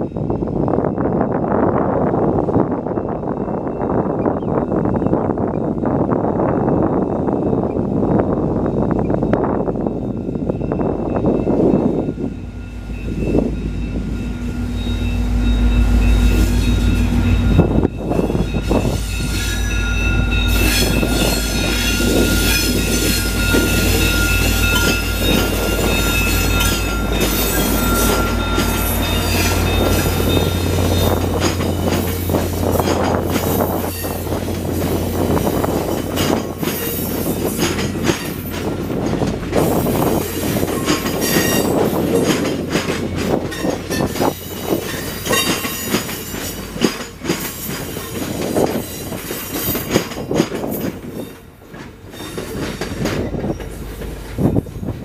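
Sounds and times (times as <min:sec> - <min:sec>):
diesel locomotive engine rumble: 0:00.0 - 0:55.0
train wheels rushing on rails: 0:00.0 - 0:55.0
high wheel squeal: 0:07.7 - 0:38.5, 0:39.6 - 0:42.4, 0:52.1 - 0:54.9
wheels clicking over rail joints: 0:20.5 - 0:55.0.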